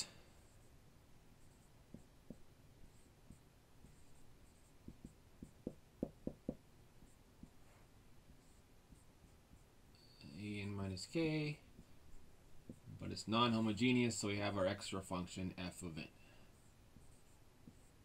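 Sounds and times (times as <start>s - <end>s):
marker squeaking on whiteboard: 1.4s - 10.7s, 11.6s - 13.0s, 16.5s - 18.0s
marker tip tapping board: 1.9s - 2.5s, 4.8s - 6.7s.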